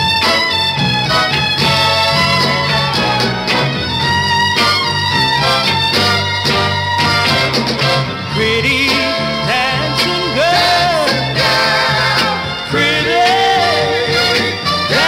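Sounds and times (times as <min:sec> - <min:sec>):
bass and backing instruments: 0:00.0 - 0:15.0
man singing soul ballad: 0:08.3 - 0:15.0.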